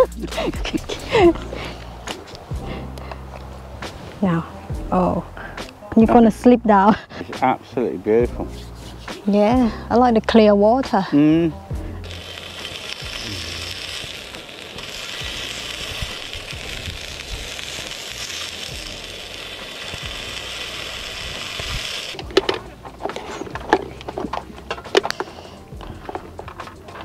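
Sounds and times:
meat sizzling on a grill plate: 12.0s - 22.2s.

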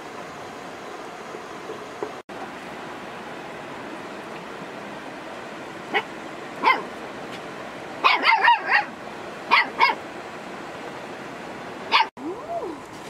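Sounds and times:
dog barking: 5.9s - 6.9s, 8.0s - 8.9s, 9.5s - 10.0s, 11.9s - 12.1s.

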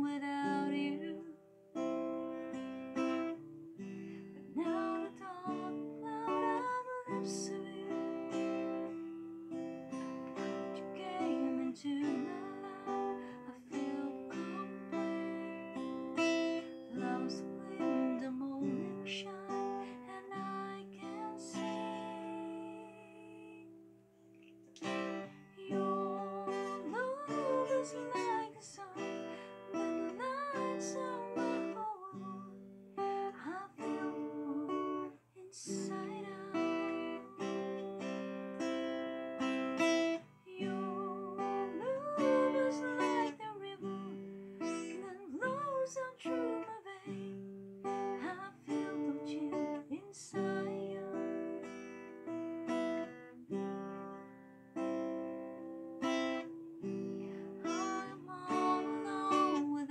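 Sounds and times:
woman singing: 0.0s - 3.3s, 4.3s - 9.0s, 9.9s - 23.9s, 24.8s - 52.4s, 56.0s - 59.9s
acoustic guitar strumming: 0.0s - 23.2s, 24.7s - 59.9s.

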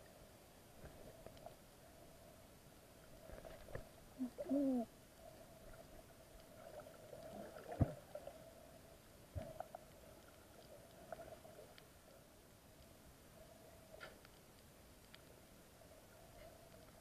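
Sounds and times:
low underwater hum: 0.0s - 17.0s.

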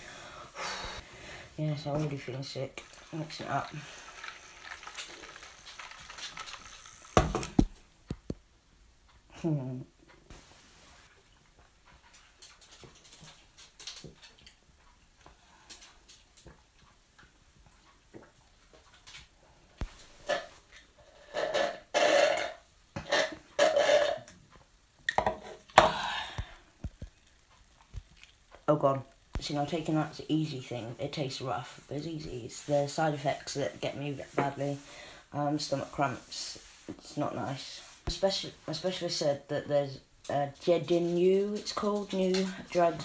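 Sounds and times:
slurping through a straw: 2.8s - 7.2s.

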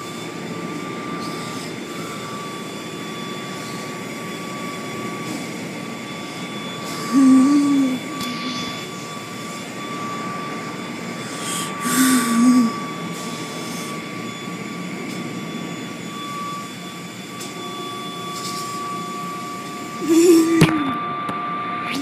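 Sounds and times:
constant high whine: 0.0s - 22.0s.

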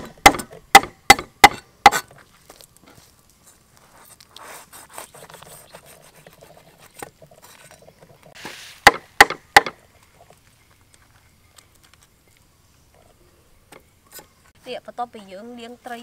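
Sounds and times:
cleaver chopping on wooden board: 0.0s - 2.1s, 8.4s - 9.8s.

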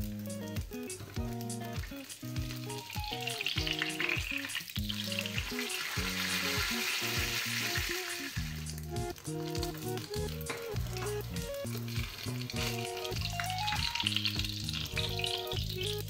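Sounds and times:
hot oil sizzling: 0.0s - 16.0s.

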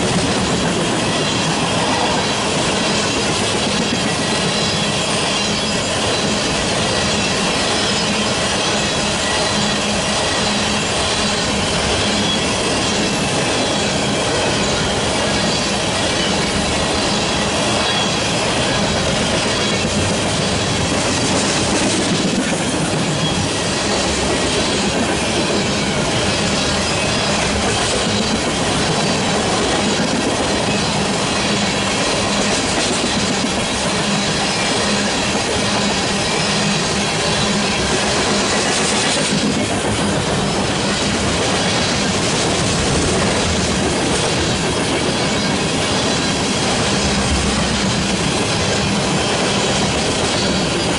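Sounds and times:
train wheels on rails: 0.0s - 50.9s.

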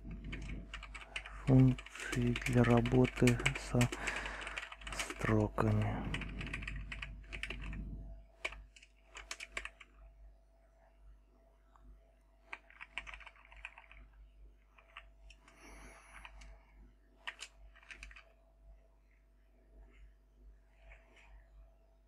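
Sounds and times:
keyboard typing: 0.0s - 10.0s, 12.5s - 14.1s, 14.7s - 16.6s, 17.2s - 18.3s.

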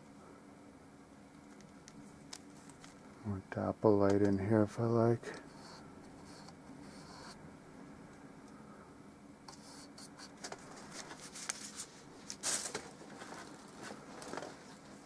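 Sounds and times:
small objects rustling and clicking: 1.3s - 3.0s, 10.4s - 14.8s.

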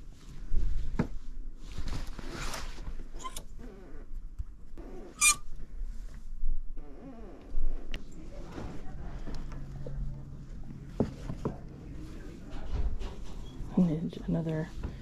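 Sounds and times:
fabric rustling: 0.0s - 3.2s.

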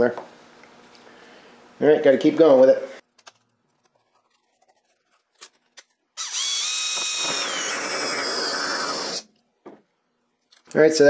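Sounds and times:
cordless drill whining: 6.2s - 9.3s.

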